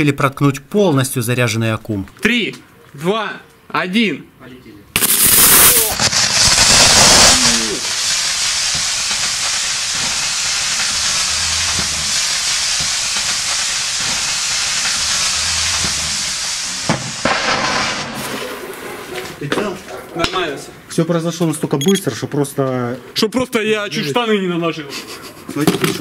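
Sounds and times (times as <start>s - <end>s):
battery venting with loud hiss: 5.0s - 18.3s.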